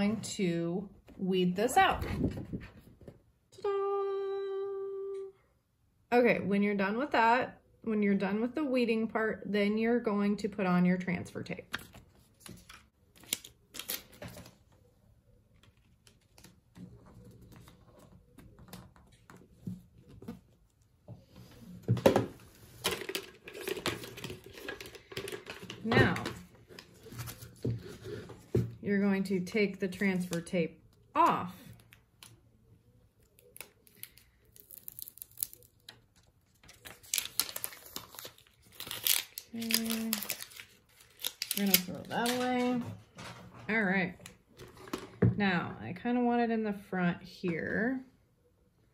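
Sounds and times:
plastic decal sheet crackling: 33.2s - 42.8s
tape peeling off backing sheet: 33.4s - 35.9s
paper rustling: 33.5s - 42.8s.

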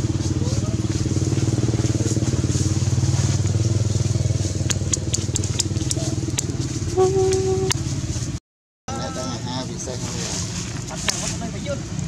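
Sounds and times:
engine running with fast throb: 0.0s - 8.4s
sharp clicks: 4.6s - 6.5s.

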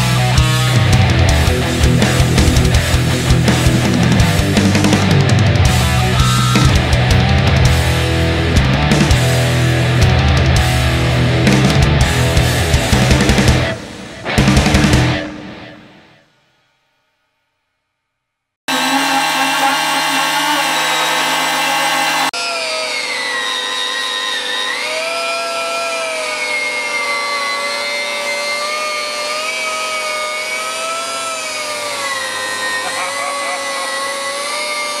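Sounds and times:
steady power tool sound: 0.0s - 10.1s, 18.7s - 35.0s
wire wheel grinder on sheet metal: 18.7s - 35.0s.

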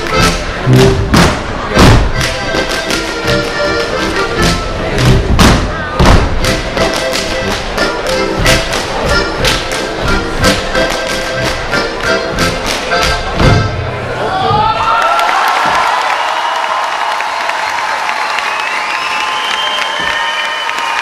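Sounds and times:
accompanying music: 0.0s - 13.9s
dancers slapping and stamping: 0.7s - 4.2s, 5.0s - 13.7s.

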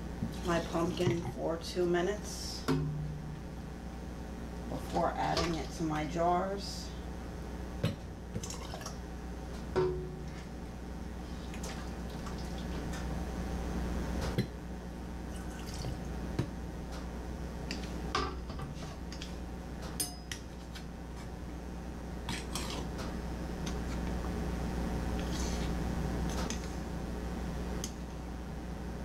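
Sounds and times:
steady low hum: 0.0s - 29.0s
liquid splashing and pouring: 8.4s - 8.9s.

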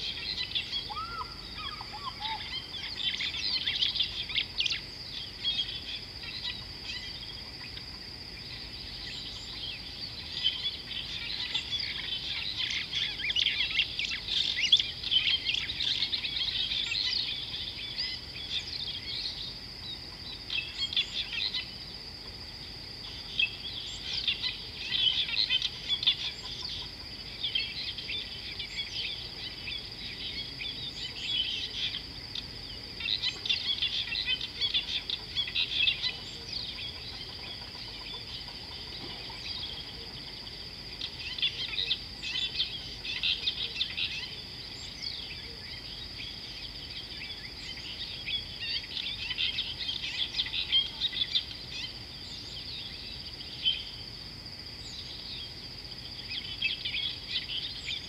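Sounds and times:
birds chirping and calling: 0.0s - 21.8s, 23.0s - 53.9s
constant high-pitched whine: 0.0s - 58.0s.

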